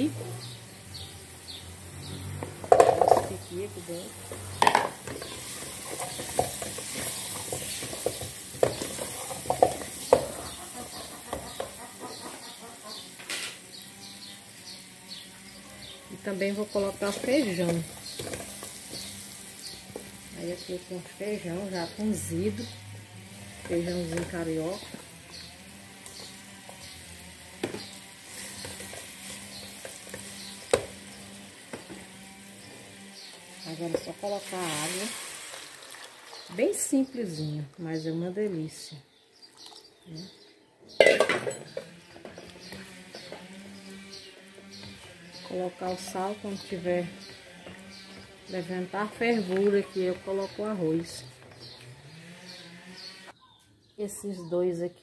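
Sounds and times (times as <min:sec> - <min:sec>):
food sizzling in oil: 0:00.0 - 0:37.1
wooden spoon stirring: 0:04.3 - 0:11.8.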